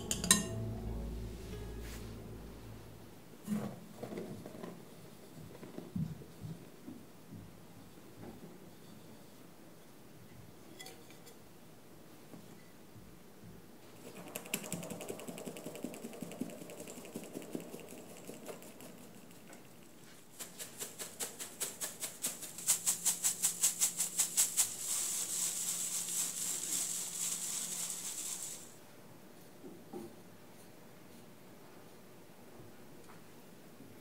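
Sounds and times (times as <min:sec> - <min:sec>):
powder falling through sieve hiss: 0:14.0 - 0:28.8.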